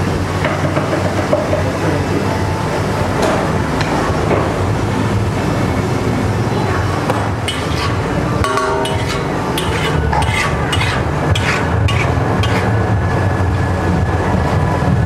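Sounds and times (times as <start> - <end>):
metal spatula scraping griddle: 7.5 - 12.8.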